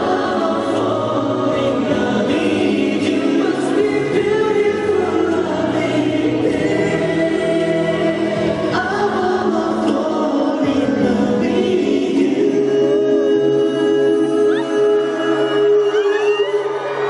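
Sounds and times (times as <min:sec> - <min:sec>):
man singing into a microphone: 0:00.0 - 0:16.9
live pop music: 0:00.0 - 0:17.0.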